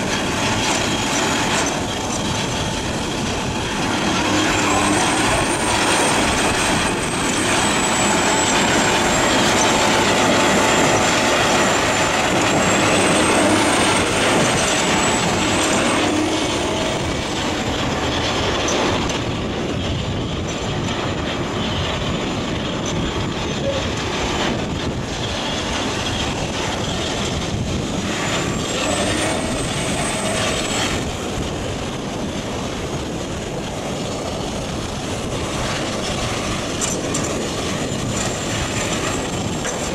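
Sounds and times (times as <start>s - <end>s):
thin high whine: 0.0s - 19.1s
diesel shredder machinery: 0.0s - 20.5s, 23.9s - 32.7s.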